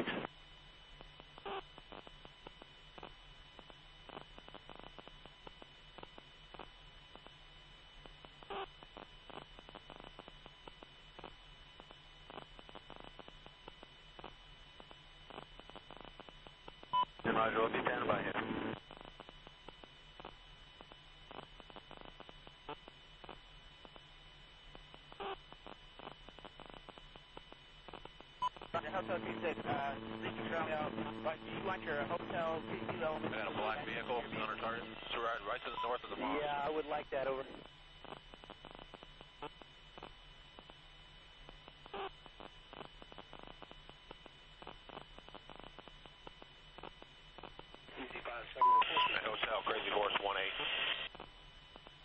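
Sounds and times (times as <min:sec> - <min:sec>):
electrical hum: 0:00.0 - 0:52.0
radio clicks and crackle: 0:00.0 - 0:52.0
radio blip: 0:28.4 - 0:36.6, 0:48.0 - 0:51.0
brief radio blips: 0:48.0 - 0:51.1.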